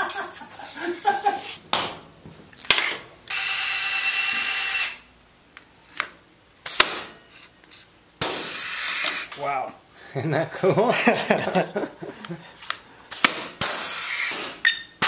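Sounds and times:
pneumatic rivet gun setting rivet: 6.0 - 7.2, 8.2 - 9.4, 13.1 - 14.7
air hiss from rivet gun: 6.6 - 7.2, 8.2 - 9.3, 13.1 - 14.6.

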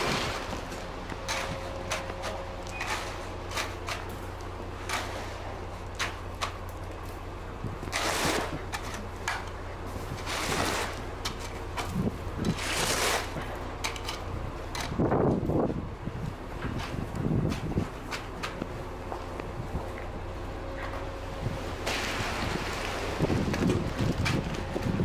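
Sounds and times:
engine running with low hum: 0.0 - 25.0.

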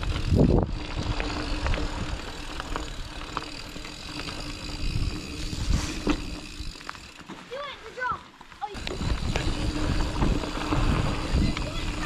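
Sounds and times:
wind on microphone: 0.0 - 2.2, 8.8 - 12.0
bike knocking and rattling: 0.0 - 12.0
bike tyres rumbling on dirt: 0.0 - 12.0.

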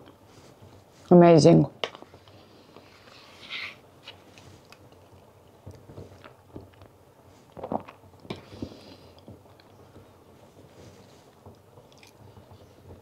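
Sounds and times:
quiet chewing: 4.3 - 6.9, 11.5 - 12.2.

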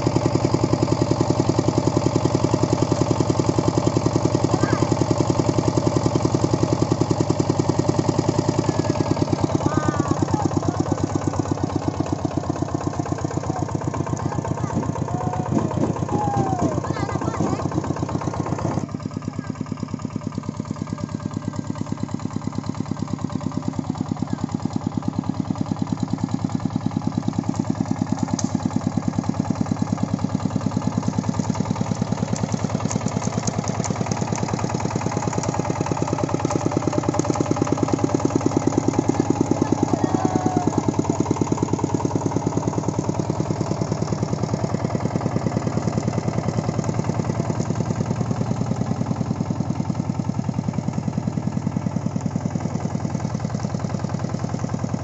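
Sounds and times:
diesel engine chugging: 0.0 - 55.0.

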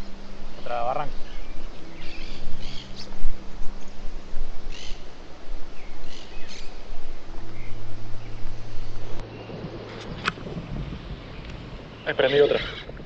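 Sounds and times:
bird chirps: 0.0 - 4.0, 4.7 - 10.3
background hiss: 0.0 - 13.0
low hum: 0.0 - 13.0.

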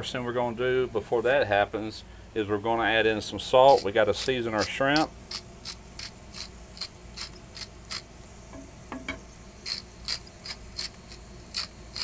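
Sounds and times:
salt grinder clicking: 3.7 - 8.0, 9.6 - 12.0.

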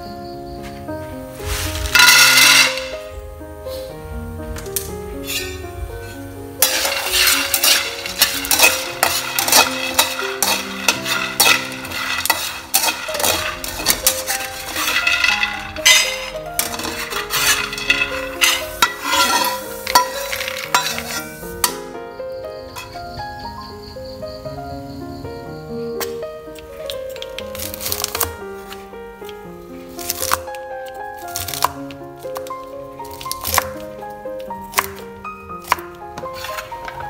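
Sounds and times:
background music: 0.0 - 37.0
peanuts tipped into steel bowl: 1.4 - 3.0, 6.6 - 21.7
nuts rattling in a metal wok: 1.7 - 3.0, 6.6 - 21.5.

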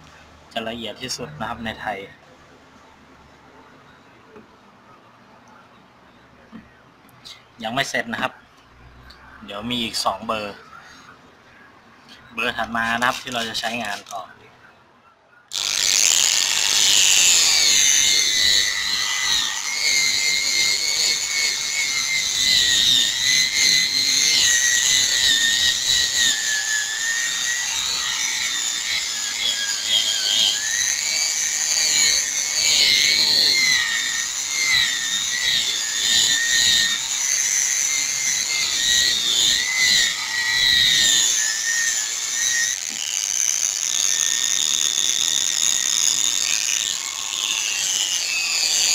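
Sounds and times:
power sander whining: 15.5 - 48.9.

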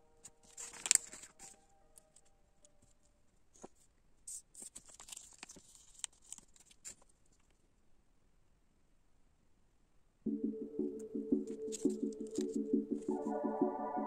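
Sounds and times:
plastic rustling: 0.2 - 7.6.

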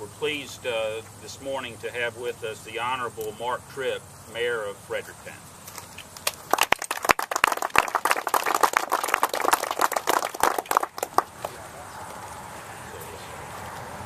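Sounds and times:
small crowd applauding: 6.2 - 11.7
road traffic rushing: 8.7 - 14.0.

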